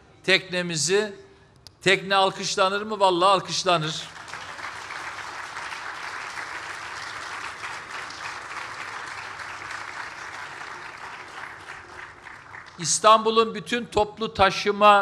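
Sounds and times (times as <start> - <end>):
crowd applauding: 4.0 - 13.0.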